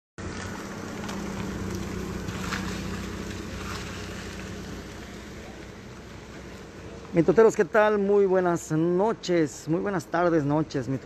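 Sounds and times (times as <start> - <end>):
vehicle engine idling: 0.2 - 8.6
street noise: 0.2 - 11.0.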